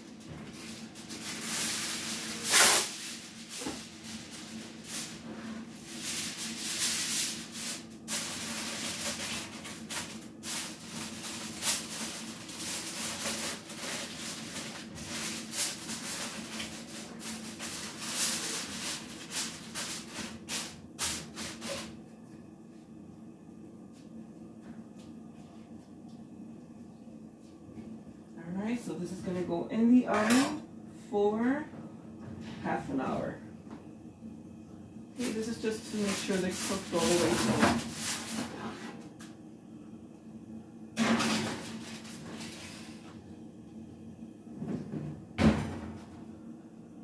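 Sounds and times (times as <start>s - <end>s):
aluminum foil crinkling: 0.5s - 21.8s, 35.2s - 38.4s.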